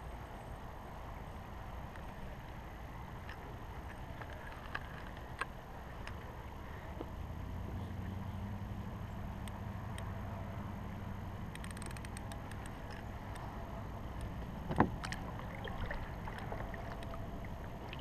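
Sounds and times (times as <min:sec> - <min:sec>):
small clicks: 0:11.5 - 0:13.5
water lapping against hull: 0:12.2 - 0:18.0.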